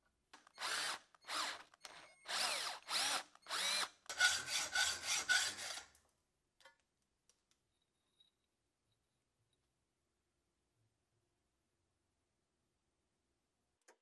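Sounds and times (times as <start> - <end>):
hacksaw cutting steel: 2.4 - 5.9.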